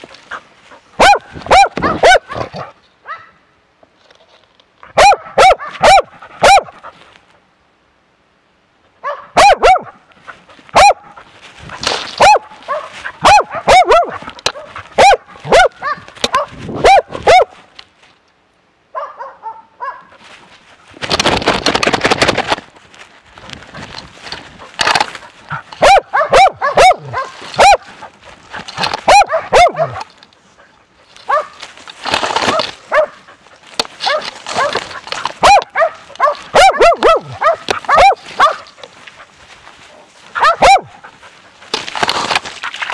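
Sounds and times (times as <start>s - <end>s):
rustling noise: 0.0s - 3.2s, 3.8s - 7.5s, 9.8s - 18.4s, 19.8s - 42.9s
dog barking loudly: 1.0s - 3.4s, 4.9s - 6.9s, 9.0s - 10.1s, 10.7s - 11.2s, 12.2s - 17.6s, 18.9s - 20.1s, 25.5s - 28.1s, 28.8s - 30.1s, 31.3s - 31.6s, 32.5s - 33.3s, 34.0s - 38.8s, 40.3s - 41.1s.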